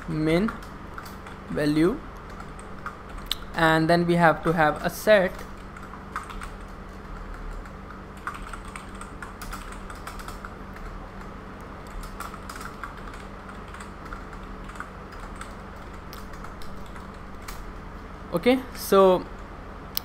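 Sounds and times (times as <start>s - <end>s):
steady low hum: 0.0s - 20.0s
computer keyboard typing: 0.3s - 1.4s, 2.2s - 3.4s, 4.7s - 17.7s.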